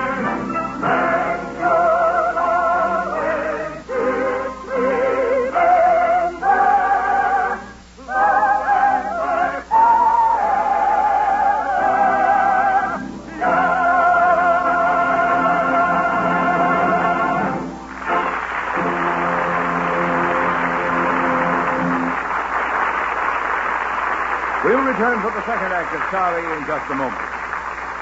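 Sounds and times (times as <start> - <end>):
orchestra playing: 0.0 - 3.4, 13.3 - 22.3
solo operatic singing: 0.0 - 17.7.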